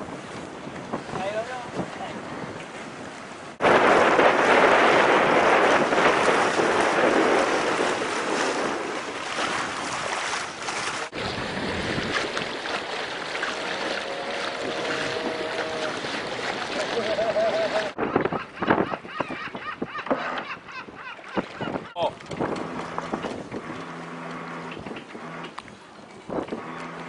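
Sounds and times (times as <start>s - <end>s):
rushing water: 0.0s - 18.0s
wind on microphone: 0.0s - 24.0s, 26.2s - 26.9s.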